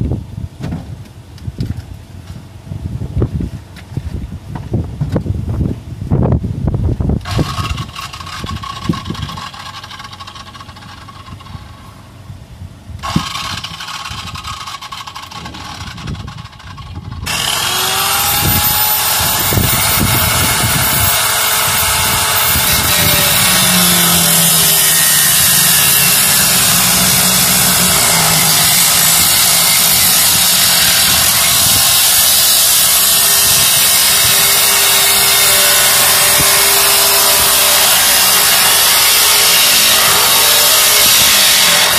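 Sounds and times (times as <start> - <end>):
wind noise: 0.0 - 41.9
power tool cutting metal: 7.2 - 11.6, 13.0 - 41.9.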